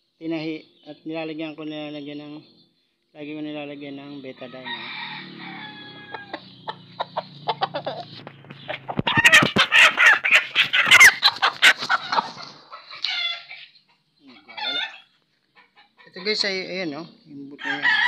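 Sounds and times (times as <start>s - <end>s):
rooster squawking and clucking: 4.5s - 16.3s.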